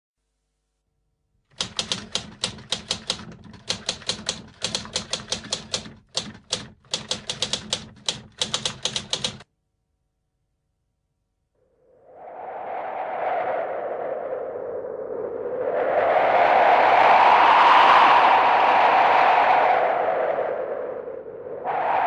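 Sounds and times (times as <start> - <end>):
typewriter keys clacking: 1.5 - 9.4.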